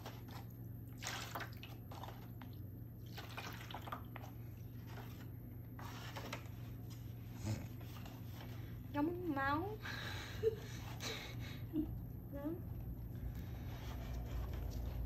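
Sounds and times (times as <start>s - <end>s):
liquid dye splashing and dripping: 0.0s - 5.4s
low steady hum: 0.0s - 15.0s.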